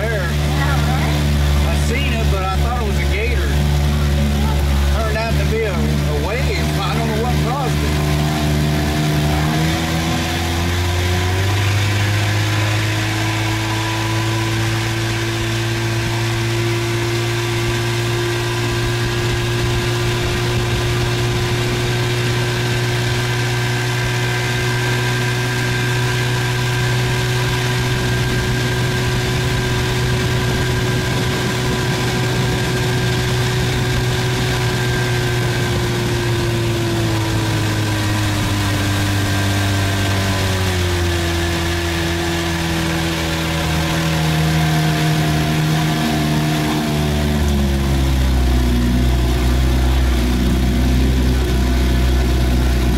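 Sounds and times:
outboard motor running: 0:00.0 - 0:52.9
wind and water rushing: 0:00.0 - 0:52.9.

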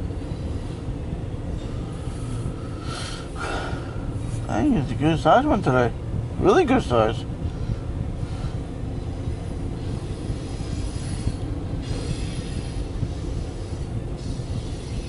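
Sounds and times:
freight train wheels rumbling: 0:00.0 - 0:15.0
high-pitched wheel squeal: 0:09.1 - 0:15.0.

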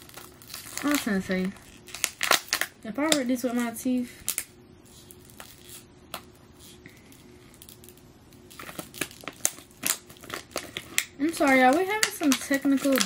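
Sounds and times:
plastic packaging clicking: 0:00.0 - 0:03.7, 0:07.6 - 0:13.0
plastic packaging crinkling: 0:00.0 - 0:05.9, 0:06.7 - 0:13.0.

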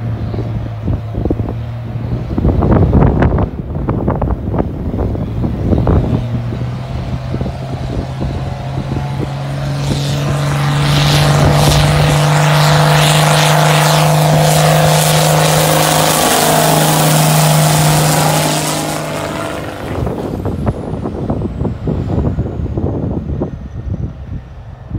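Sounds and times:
diesel tractor engine under load: 0:00.0 - 0:24.9.

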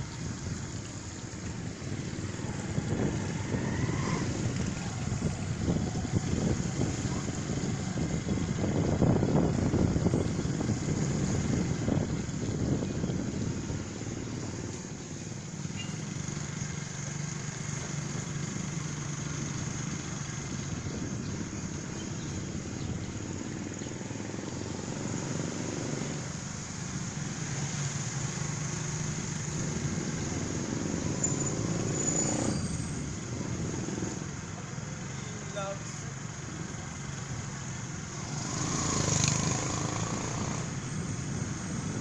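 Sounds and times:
road and wind noise: 0:00.0 - 0:42.0
scooter engine running: 0:04.2 - 0:31.9, 0:36.1 - 0:42.0.

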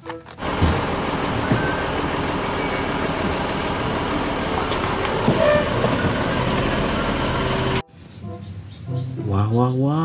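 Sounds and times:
diesel engine running: 0:00.4 - 0:07.8
garbage truck hydraulic packer: 0:00.4 - 0:07.8
short squealing tones: 0:05.2 - 0:06.2.

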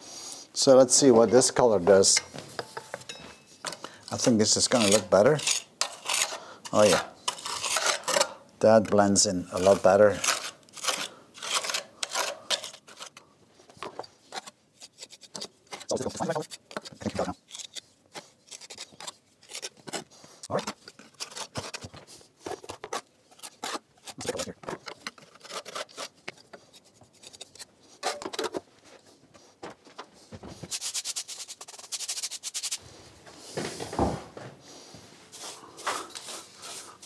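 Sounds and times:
trowel scraping mortar: 0:02.7 - 0:13.2, 0:13.9 - 0:28.6, 0:30.7 - 0:32.8
fine rapid scratching: 0:30.6 - 0:32.8.

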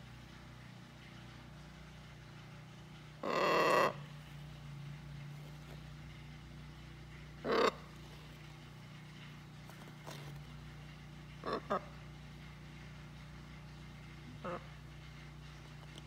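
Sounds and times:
macaw squawking: 0:03.2 - 0:04.0, 0:07.4 - 0:07.9, 0:11.4 - 0:12.0, 0:14.4 - 0:14.8.

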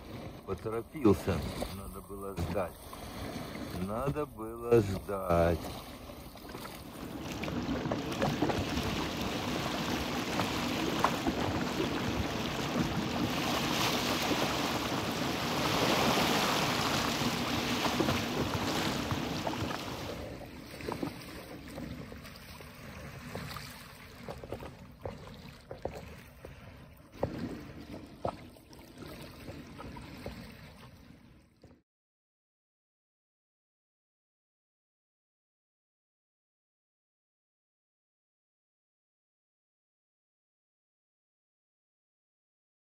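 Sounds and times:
sea water lapping: 0:00.0 - 0:31.8.

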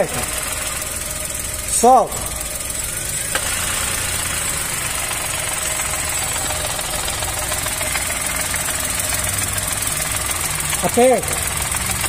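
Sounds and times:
car engine idling: 0:00.0 - 0:12.0
clutch rattling: 0:00.0 - 0:12.0.

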